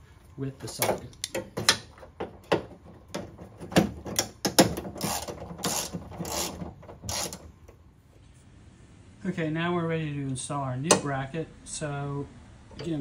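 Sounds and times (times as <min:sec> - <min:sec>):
hand ratchet clicking: 0:04.2 - 0:07.5.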